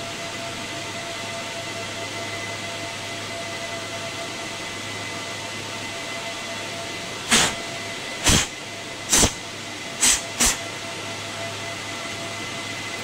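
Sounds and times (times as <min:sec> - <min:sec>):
equipment fan hum: 0:00.0 - 0:13.0
hissing puffs of air: 0:07.3 - 0:07.6, 0:08.2 - 0:09.4, 0:10.0 - 0:10.6.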